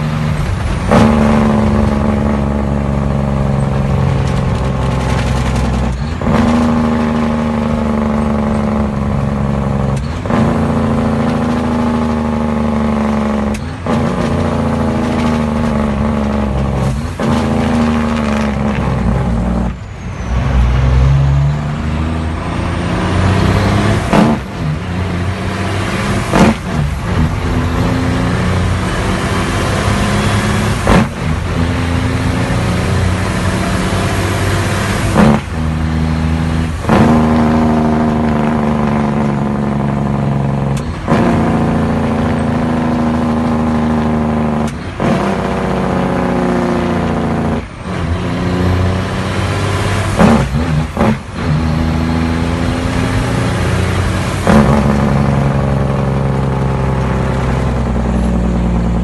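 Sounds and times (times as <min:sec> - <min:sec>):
diesel truck engine under load: 0:00.0 - 0:59.0.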